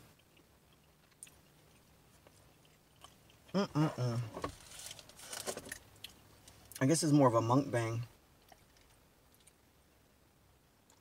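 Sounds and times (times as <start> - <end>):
man murmuring with mouth full: 3.5 - 4.4
aluminium foil crackling: 4.5 - 5.8.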